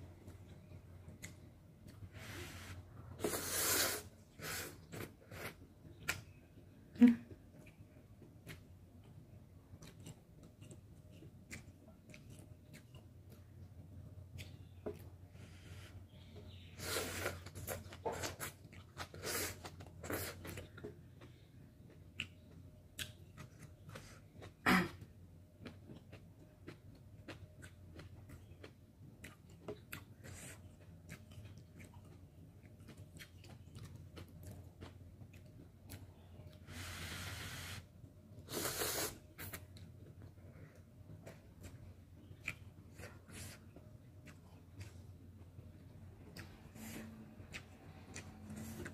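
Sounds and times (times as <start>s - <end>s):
wet chewing and mouth clicks: 7.4s - 15.2s, 16.1s - 24.6s, 25.6s - 36.6s, 38.0s - 48.9s
slurping noodles: 38.5s - 39.5s.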